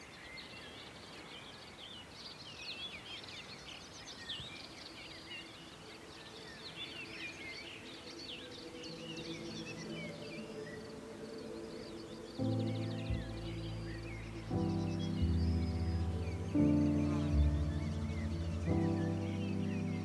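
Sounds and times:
songbirds chirping: 0.0 - 20.0
soft held musical notes: 9.3 - 20.0.

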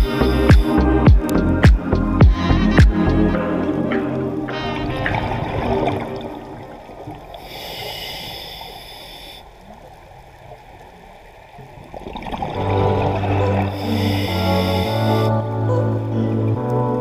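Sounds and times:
music: 0.0 - 6.7, 12.6 - 17.0
rumble of exhaled bubbles: 4.8 - 7.6, 9.6 - 16.8
regulator hissing inhale: 7.4 - 9.7, 13.7 - 15.3.

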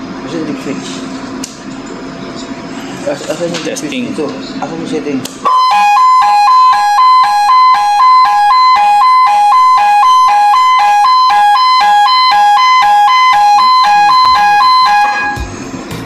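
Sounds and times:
two-tone alarm sounder: 5.4 - 15.5.

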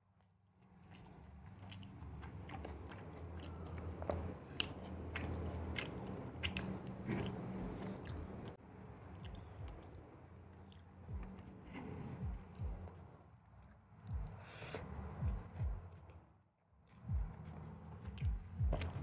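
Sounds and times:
person chewing food: 0.9 - 8.6
wet mouth clicks and crunches: 0.9 - 8.6
low electrical hum: 6.6 - 8.6.

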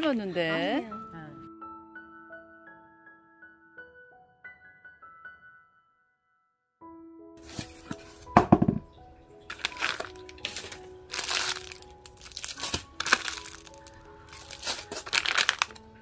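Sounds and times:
soft background music: 0.0 - 16.0
plastic packets crinkling: 9.5 - 16.0.

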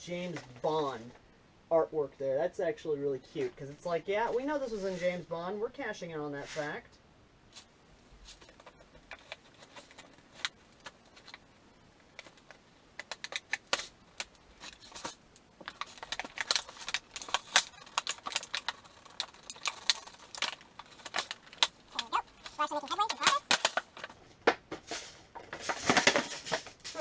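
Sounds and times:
plastic packaging crackling: 7.6 - 27.0.

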